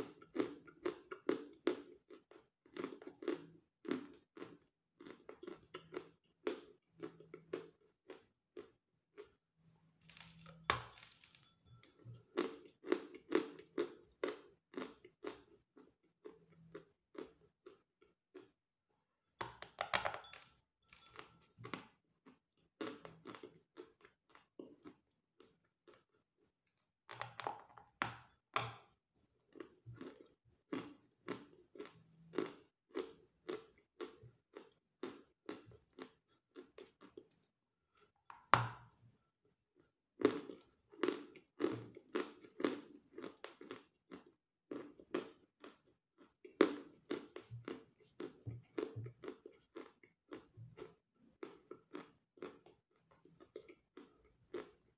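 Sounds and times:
person biting and chewing chalk: 0:10.0 - 0:11.4.

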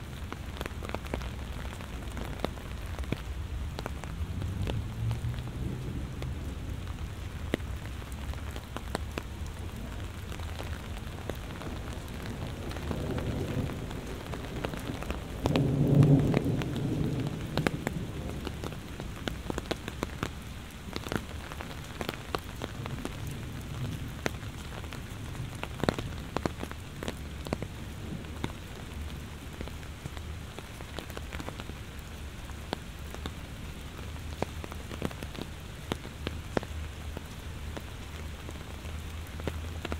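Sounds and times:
heavy rain: 0:00.0 - 0:39.9
thunder rumbling: 0:09.9 - 0:19.7.

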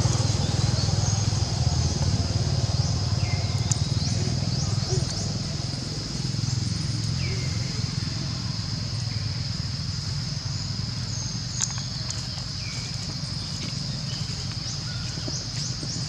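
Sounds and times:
footsteps rustling dry leaves: 0:12.0 - 0:16.0.

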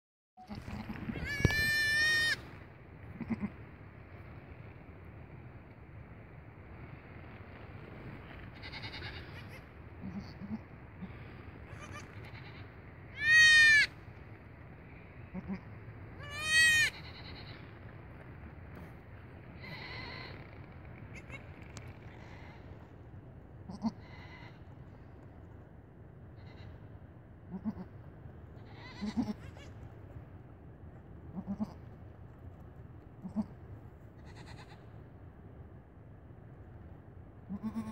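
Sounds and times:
goat kid bleating: 0:00.4 - 0:02.5, 0:03.1 - 0:03.6, 0:08.6 - 0:13.9, 0:15.3 - 0:17.6, 0:19.6 - 0:20.4, 0:21.1 - 0:22.7, 0:23.7 - 0:24.6, 0:26.4 - 0:26.8, 0:27.5 - 0:28.0, 0:28.6 - 0:29.8, 0:31.3 - 0:31.9, 0:33.2 - 0:33.6, 0:34.2 - 0:34.9, 0:37.5 - 0:37.9.

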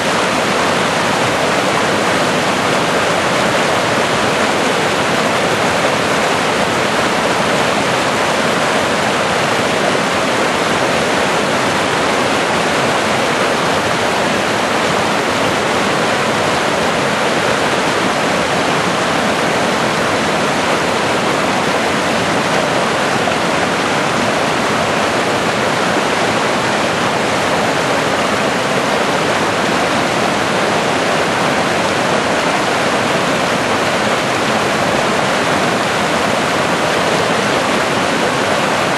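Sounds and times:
stream rushing over boulders: 0:00.0 - 0:38.9.

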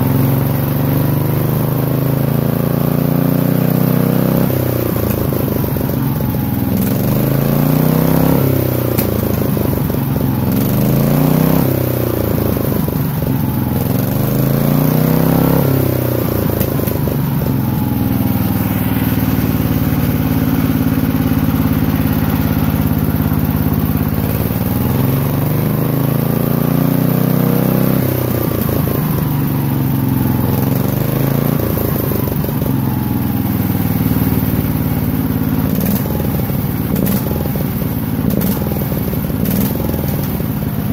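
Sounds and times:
engine revving: 0:01.2 - 0:40.9.

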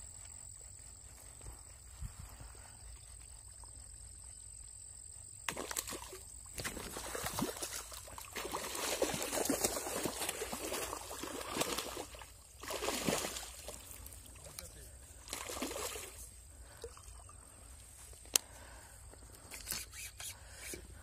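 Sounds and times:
fish splashing in water: 0:05.5 - 0:14.2, 0:15.2 - 0:16.2.

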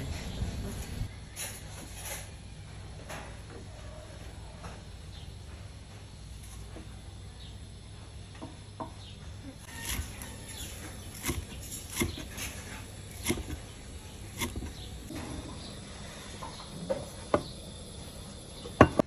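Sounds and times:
cleaver chopping on wooden board: 0:09.7 - 0:13.7, 0:14.3 - 0:14.9.

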